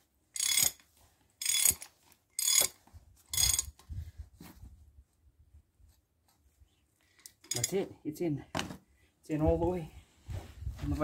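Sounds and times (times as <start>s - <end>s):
ratchet wrench clicking: 0.4s - 0.8s, 1.4s - 2.8s.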